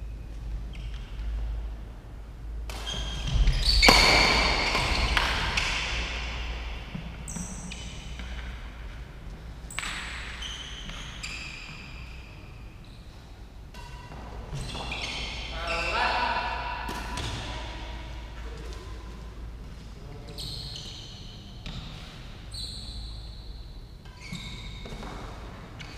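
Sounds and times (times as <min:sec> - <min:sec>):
racket hitting shuttlecock: 0:02.7 - 0:08.5, 0:09.7 - 0:10.4, 0:16.4 - 0:17.8.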